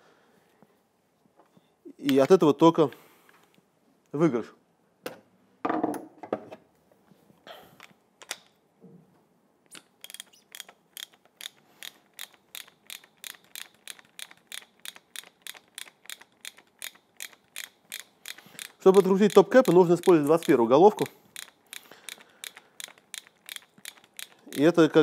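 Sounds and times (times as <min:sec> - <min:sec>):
ratchet wrench clicking: 0:09.8 - 0:25.0.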